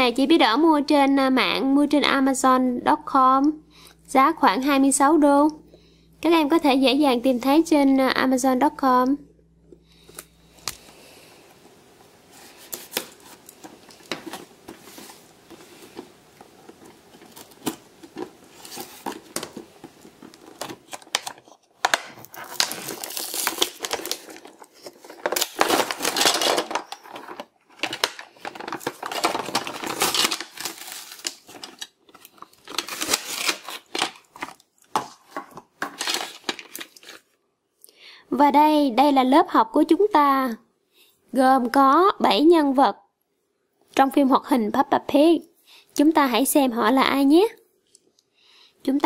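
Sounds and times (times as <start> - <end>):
plastic wrap crinkling and tearing: 12.4 - 37.4.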